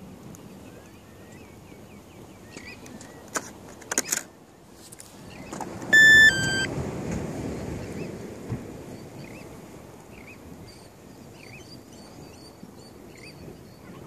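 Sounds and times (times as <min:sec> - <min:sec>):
two-tone electronic beep: 0:05.9 - 0:06.7
faint bird chirps: 0:06.0 - 0:06.7.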